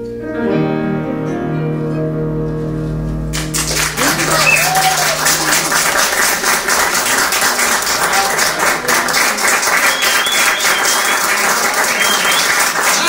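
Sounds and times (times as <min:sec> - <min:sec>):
audience applauding: 0:03.3 - 0:13.0
close hand clapping: 0:03.3 - 0:13.0.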